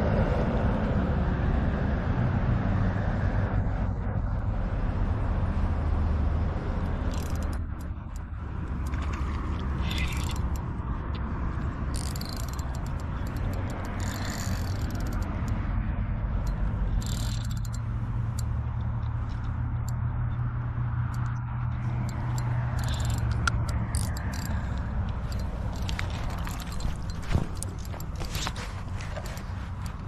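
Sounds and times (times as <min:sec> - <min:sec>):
steady low rumble: 0:00.0 - 0:30.0
spinning reel gears whirring: 0:07.0 - 0:09.1, 0:09.8 - 0:10.6, 0:11.9 - 0:15.6, 0:16.4 - 0:18.6, 0:21.1 - 0:28.5.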